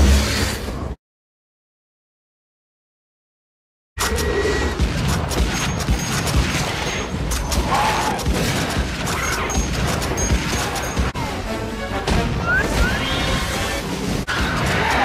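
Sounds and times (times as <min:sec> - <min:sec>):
dense battle noise: 0:04.0 - 0:15.0
rapid rifle gunfire: 0:04.8 - 0:11.1.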